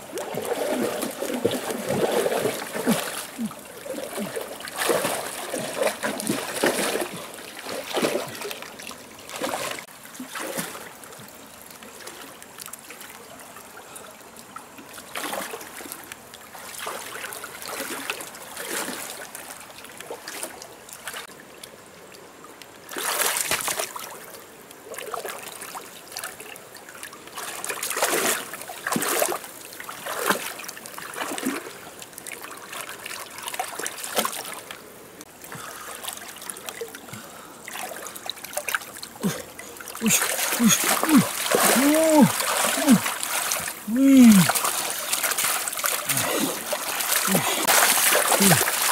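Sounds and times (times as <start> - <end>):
water splashes: 0.0 - 48.9
shallow water trickling: 26.1 - 48.9.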